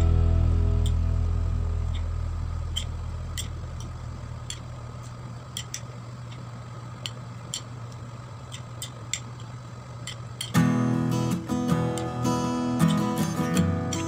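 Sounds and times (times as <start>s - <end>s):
faint steady hum: 0.0s - 14.0s
utensils clicking on ceramic plate: 8.5s - 10.6s.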